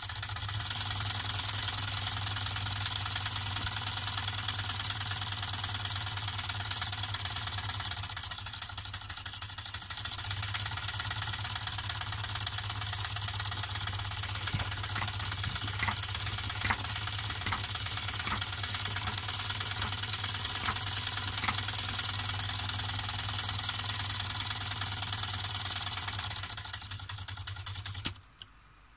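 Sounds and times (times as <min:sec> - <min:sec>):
fast plastic rattle: 0:06.3 - 0:24.6, 0:26.0 - 0:28.3.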